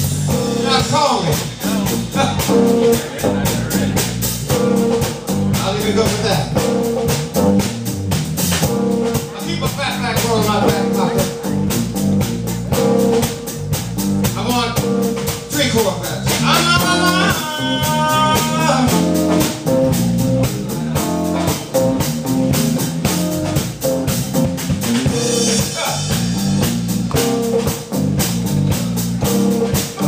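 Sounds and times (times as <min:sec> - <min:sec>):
bass guitar: 0:00.0 - 0:30.0
steady drum beat: 0:00.0 - 0:30.0
lead electric guitar: 0:08.6 - 0:30.0.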